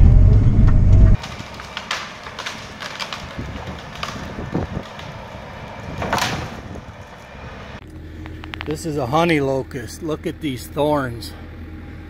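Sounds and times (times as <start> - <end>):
distant excavator engine: 0.0 - 12.0
branches cracking and snapping: 1.2 - 8.8.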